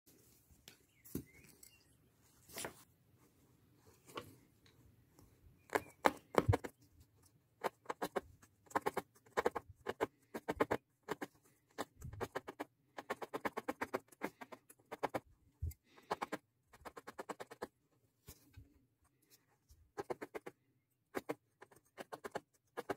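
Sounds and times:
felting needle poking into foam: 5.6 - 6.8, 7.6 - 17.8, 19.9 - 22.9.

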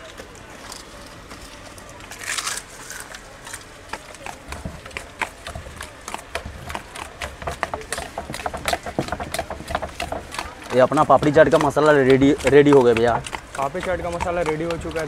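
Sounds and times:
hand mixing wet food in steel bowl: 2.7 - 15.0.

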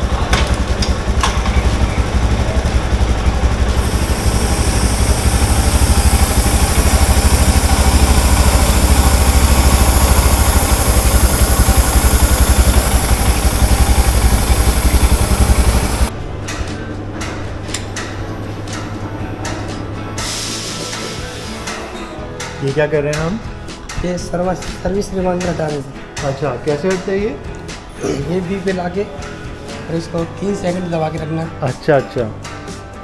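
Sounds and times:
motorcycle engine running: 0.0 - 16.4
chain spray hiss: 3.8 - 16.1.

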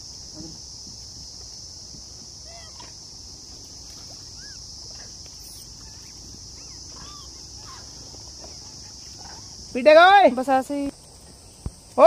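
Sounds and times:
insects droning: 0.0 - 12.0
chirping calls: 3.9 - 9.6.

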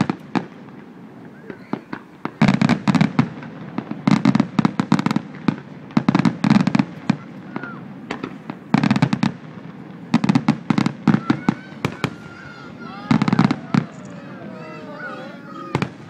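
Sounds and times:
firework pops: 0.0 - 9.4
fireworks banging and crackling: 0.0 - 16.0.

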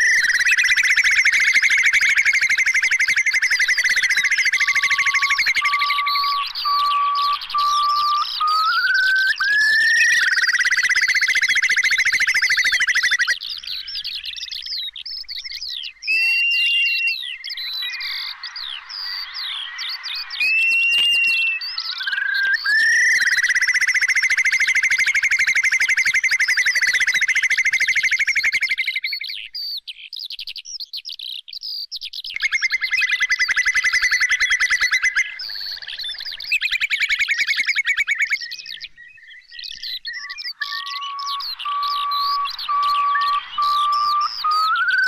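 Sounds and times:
high whistle-like tone: 0.0 - 13.3, 16.0 - 26.4, 40.1 - 45.0
high chirps: 0.0 - 28.6, 32.4 - 45.0
curlew trilling: 0.0 - 29.3, 32.4 - 45.0.

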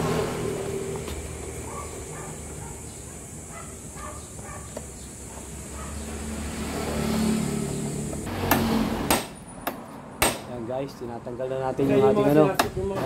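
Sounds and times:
engine hum: 0.0 - 10.2.

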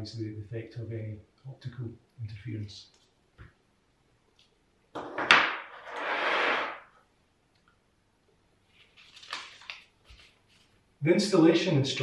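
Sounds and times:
paper rustling and sliding: 5.7 - 6.8, 8.7 - 10.8.

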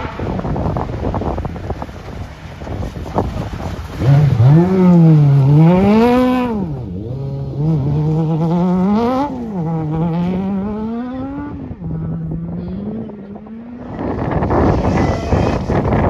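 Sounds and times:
loud rushing noise: 0.0 - 5.7
rally car engine revving: 3.0 - 16.0.

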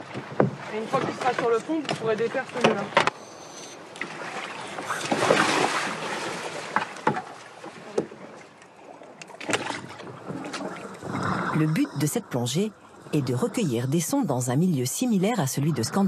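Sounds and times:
water splashing against boat: 0.0 - 16.0.

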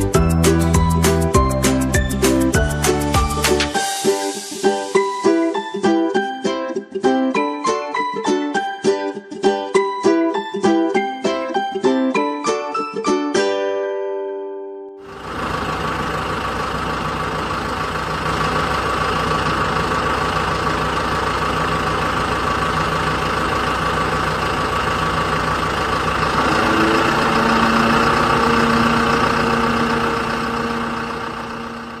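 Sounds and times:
diesel engine under load: 15.0 - 32.0.

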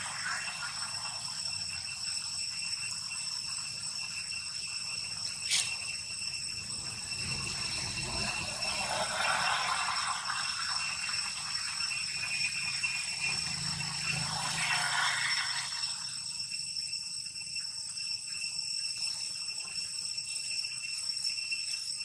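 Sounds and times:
high-pitched insect drone: 0.0 - 22.0.

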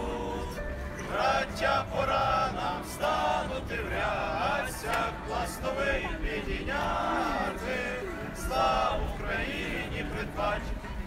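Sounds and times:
group singing together: 0.0 - 11.0.

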